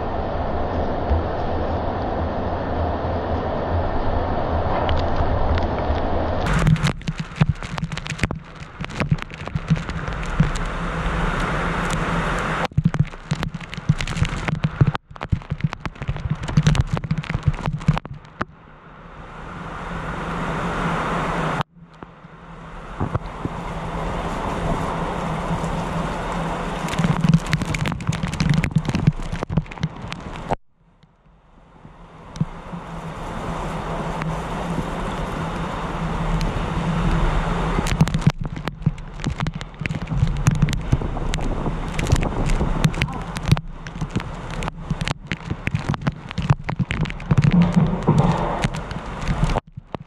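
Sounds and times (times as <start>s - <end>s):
heavy rain: 0.0s - 30.6s, 31.7s - 50.0s
gusting wind: 0.0s - 50.0s
raindrops tapping microphone: 4.7s - 18.6s, 19.6s - 50.0s.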